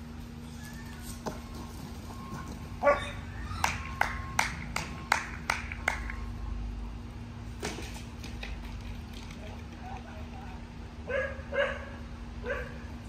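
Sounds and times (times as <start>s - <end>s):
dog barking: 11.1s - 12.8s.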